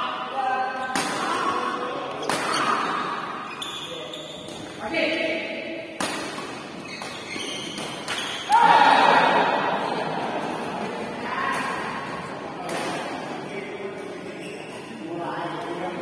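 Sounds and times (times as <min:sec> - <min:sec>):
crowd shouting and cheering: 0:08.4 - 0:12.3.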